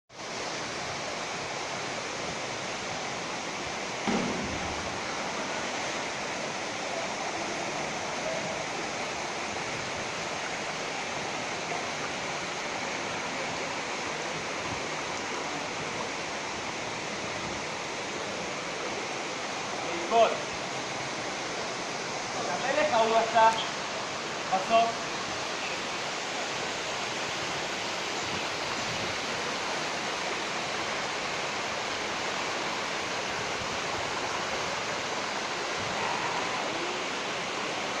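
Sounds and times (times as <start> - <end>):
waterfall rushing: 0.1 - 38.0
brief thump: 4.0 - 4.8.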